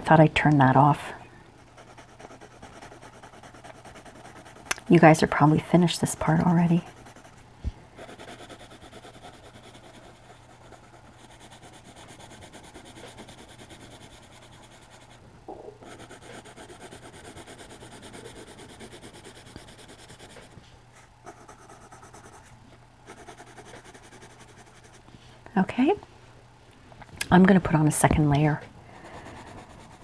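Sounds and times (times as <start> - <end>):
pencil shading on paper: 1.8 - 7.3, 8.0 - 15.2, 15.8 - 20.5, 23.1 - 25.0, 29.1 - 30.0.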